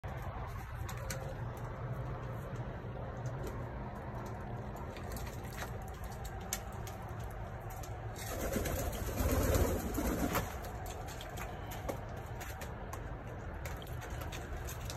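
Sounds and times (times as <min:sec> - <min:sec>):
pigeon wings flapping: 0:08.1 - 0:12.8.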